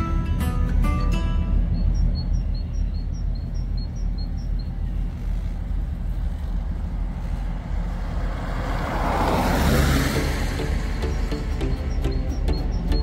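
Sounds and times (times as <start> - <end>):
low engine rumble of traffic: 0.0 - 13.0
car passing close by: 6.2 - 13.0.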